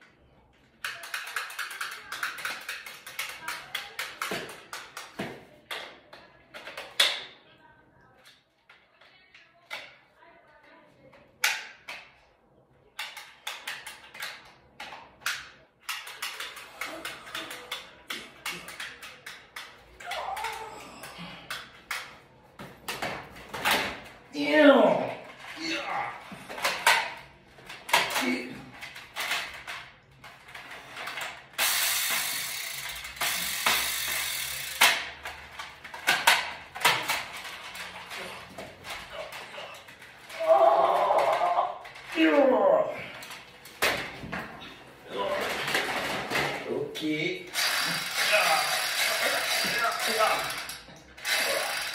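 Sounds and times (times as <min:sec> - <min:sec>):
plastic toy blaster clicks: 0:00.8 - 0:05.9, 0:13.0 - 0:20.6, 0:26.6 - 0:38.0, 0:47.5 - 0:51.9
toy blaster mechanical clicks: 0:30.5 - 0:38.0, 0:47.5 - 0:51.9.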